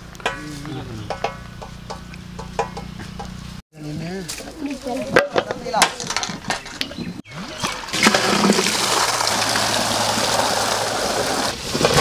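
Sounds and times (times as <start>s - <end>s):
water pouring in a stream: 7.3s - 11.7s.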